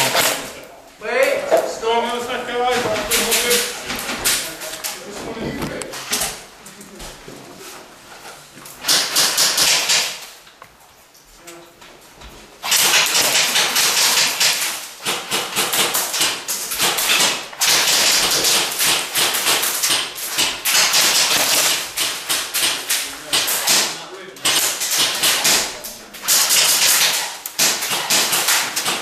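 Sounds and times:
airsoft guns firing full auto: 8.8s - 10.2s, 12.6s - 29.0s.

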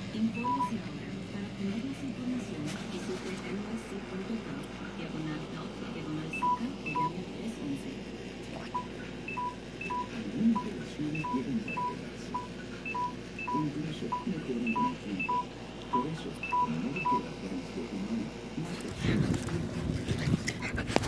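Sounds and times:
electronic device beeping: 8.8s - 17.2s
higher-pitched beeps: 8.8s - 17.2s.

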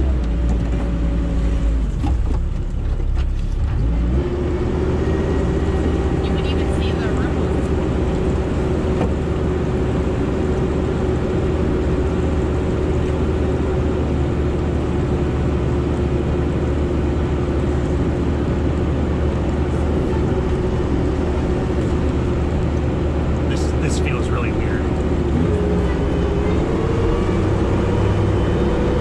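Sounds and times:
diesel engine droning: 0.0s - 29.0s.

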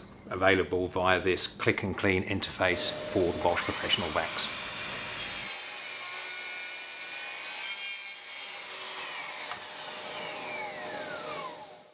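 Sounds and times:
saw motor winding down whine: 2.8s - 6.3s, 9.2s - 11.9s
miter saw cutting wood: 2.8s - 11.9s.

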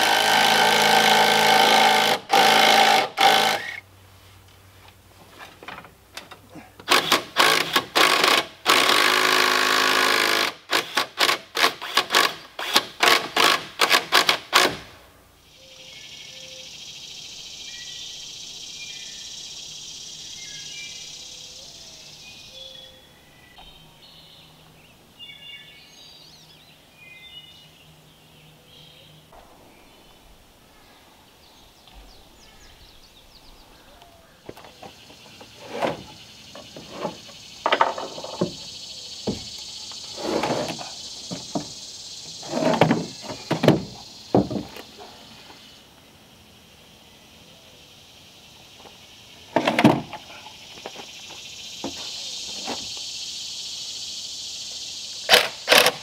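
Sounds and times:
cordless drill running under load: 0.0s - 3.8s
steady high hiss: 0.0s - 56.0s
bird chirps: 15.5s - 40.2s.

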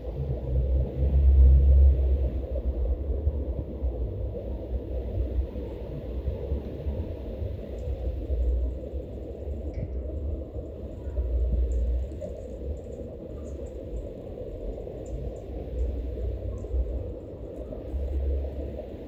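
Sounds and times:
low outdoor rumble: 0.0s - 19.0s
faint high ticks: 11.6s - 16.8s.

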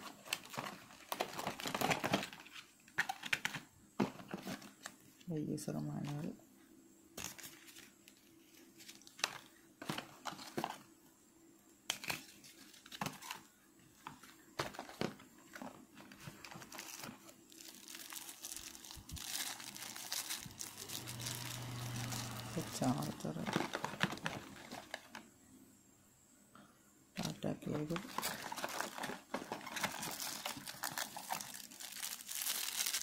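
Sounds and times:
packaging rustling: 0.0s - 5.1s, 7.2s - 10.9s, 12.0s - 25.2s, 27.2s - 33.0s.

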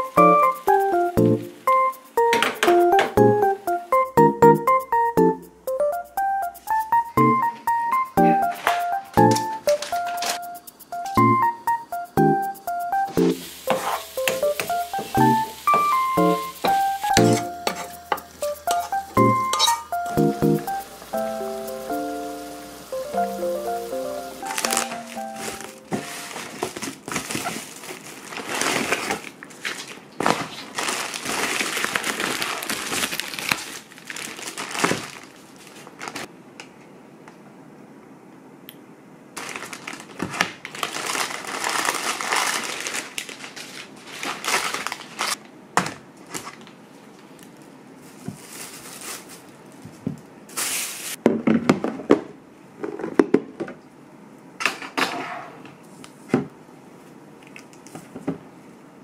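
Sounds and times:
plastic bag rustling: 9.4s - 10.4s, 13.4s - 18.1s, 24.4s - 36.3s, 39.4s - 45.4s, 46.2s - 51.2s
foil bag crinkling: 9.6s - 10.4s, 24.4s - 36.3s, 39.4s - 45.4s, 46.2s - 51.2s.

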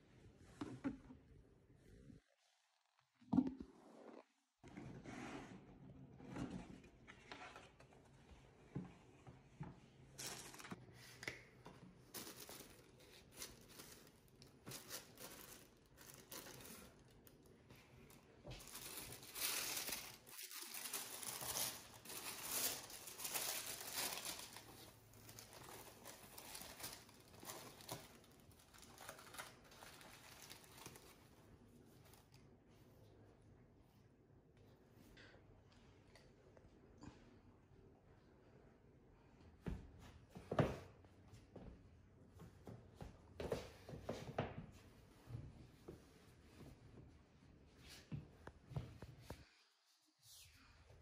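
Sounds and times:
tissue paper crinkling: 12.1s - 17.4s, 18.1s - 31.2s.

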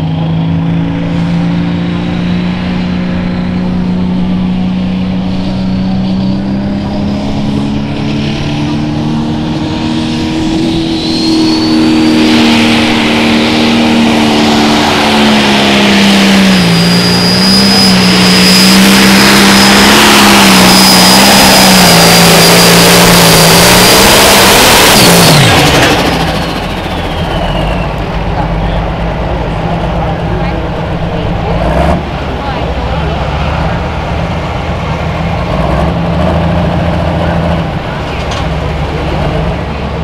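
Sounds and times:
tractor diesel engine roaring: 0.0s - 40.0s
turbo whistle: 10.6s - 12.9s, 16.4s - 22.6s, 26.0s - 28.1s.

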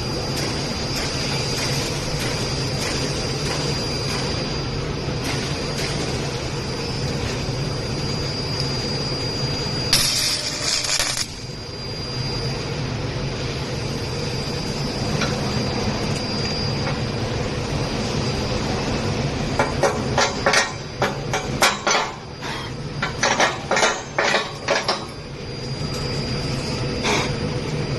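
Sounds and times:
machine hum: 0.0s - 27.9s
stud welder metallic cracks: 9.9s - 11.5s.

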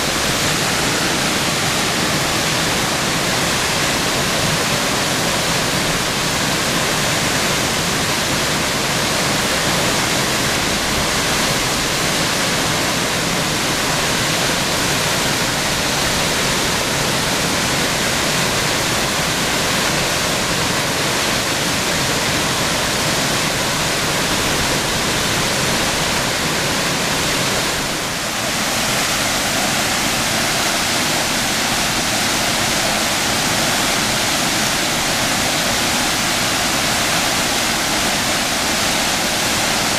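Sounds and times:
waterfall onto rocks: 0.0s - 39.9s.

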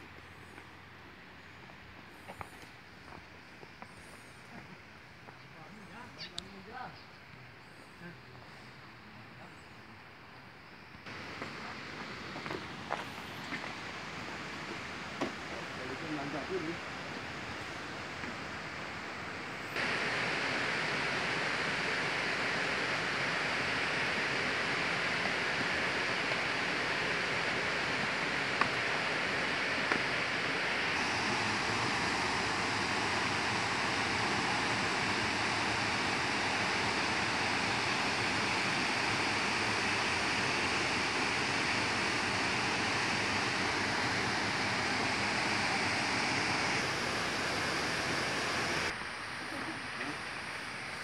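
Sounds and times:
waterfall rushing: 11.1s - 19.1s, 19.7s - 48.9s.

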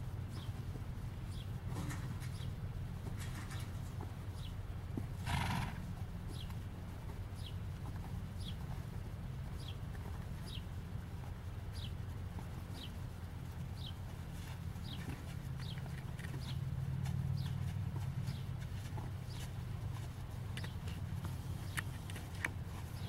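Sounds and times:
horse trotting on dirt: 0.0s - 23.0s
horse snorting: 5.1s - 6.0s.

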